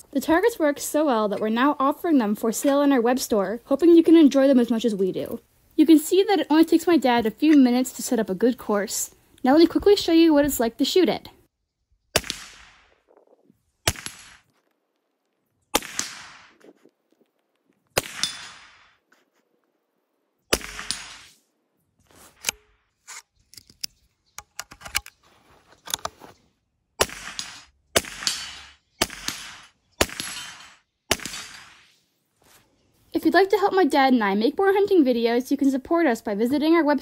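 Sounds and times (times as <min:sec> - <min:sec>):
rifle shots hitting steel: 0:12.2 - 0:13.0, 0:13.8 - 0:14.5, 0:15.7 - 0:16.6, 0:18.0 - 0:19.0, 0:20.5 - 0:21.3, 0:27.0 - 0:31.9.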